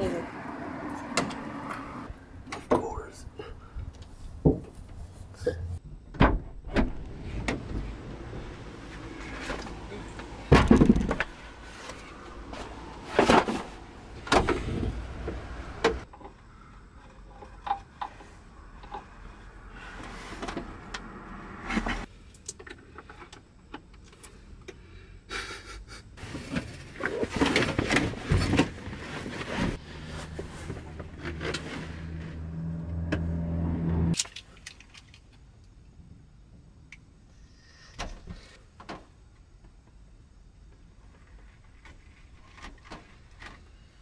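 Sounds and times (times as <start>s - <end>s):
objects knocking and clattering: 10.4s - 11.4s.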